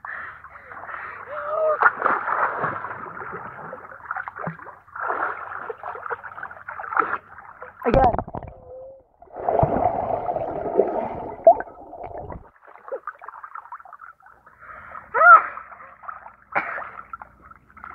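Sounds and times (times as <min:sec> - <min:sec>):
person crying out: 0:01.3 - 0:01.8, 0:15.2 - 0:15.5
light water splashing: 0:01.6 - 0:17.9
muffled bubbling water underwater: 0:08.0 - 0:12.5.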